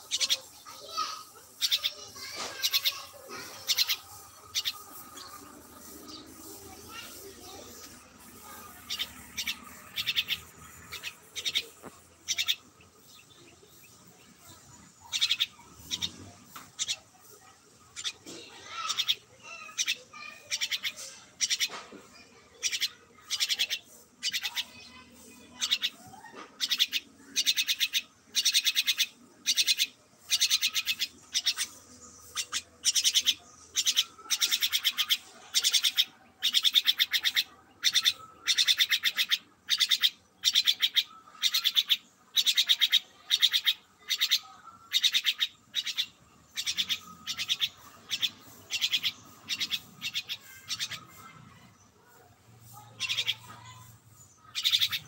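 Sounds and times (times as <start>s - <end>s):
myna rasping calls: 0.0s - 12.8s.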